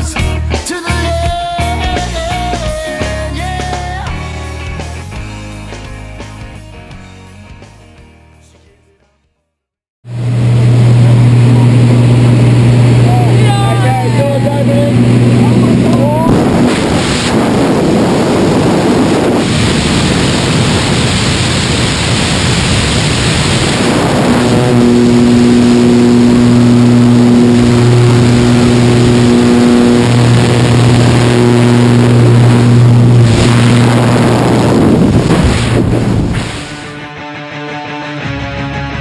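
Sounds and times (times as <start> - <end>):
plane engine and propeller droning: 10.1 - 36.6
wind rushing loudly: 14.9 - 36.9.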